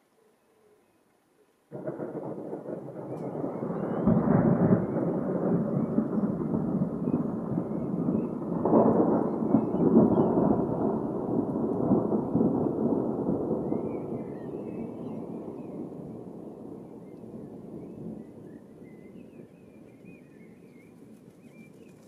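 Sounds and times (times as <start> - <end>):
rolling thunder: 1.7 - 20.8.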